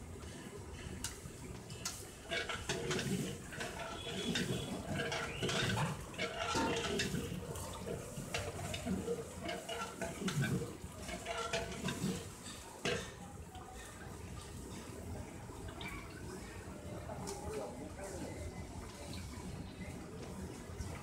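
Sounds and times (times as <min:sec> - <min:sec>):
metal ladle stirring water in pot: 0:01.4 - 0:13.2.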